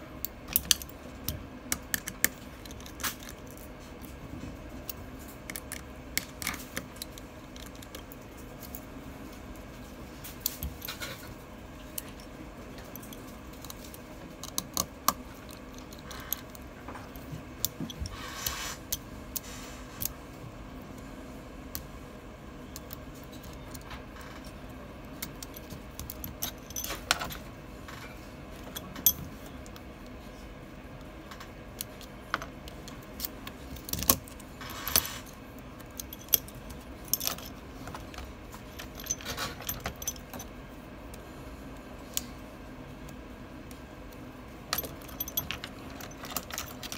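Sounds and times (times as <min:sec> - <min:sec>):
metal tools clinking on phone: 0:05.4 - 0:08.9, 0:10.2 - 0:18.2, 0:22.6 - 0:30.2, 0:31.3 - 0:40.6, 0:44.7 - 0:46.9.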